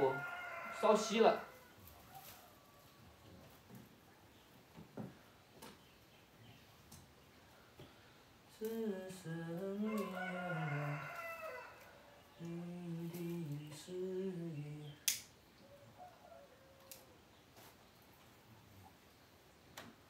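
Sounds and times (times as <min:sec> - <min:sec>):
man humming a tune: 0:08.5 - 0:11.1, 0:12.4 - 0:15.1
sharp click: 0:15.0 - 0:15.3.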